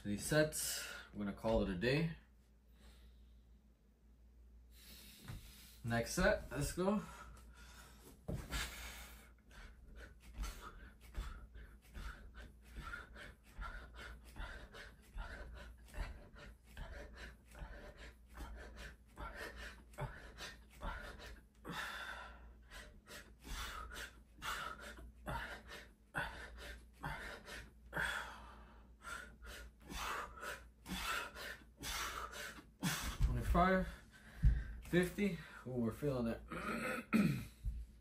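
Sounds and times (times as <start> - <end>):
man breathing hard: 4.6 - 5.8, 6.8 - 35.7.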